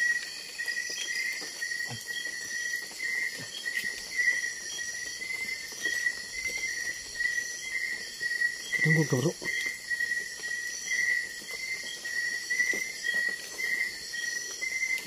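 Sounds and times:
crickets chirping: 0.0s - 15.0s.

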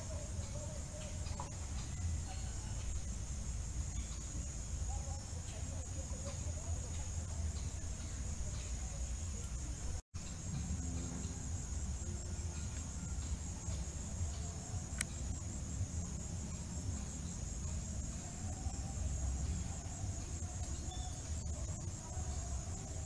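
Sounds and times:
high-pitched insect chorus: 0.0s - 23.0s
sharp click: 14.9s - 15.2s.

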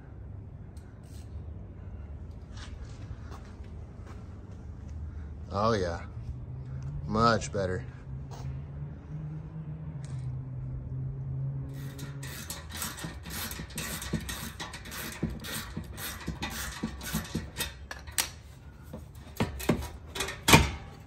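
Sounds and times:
hand ratchet clicking: 11.8s - 18.4s.

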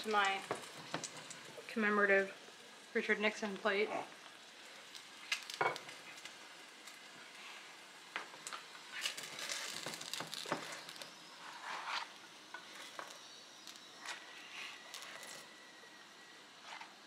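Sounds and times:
food sizzling in a frying pan: 0.0s - 17.0s.

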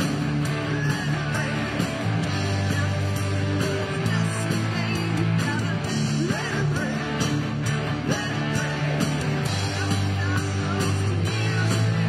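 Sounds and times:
rock band playing: 0.0s - 12.0s.

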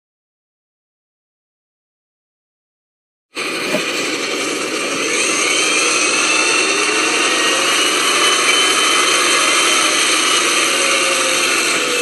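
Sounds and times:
garbage truck engine whining: 3.4s - 12.0s.

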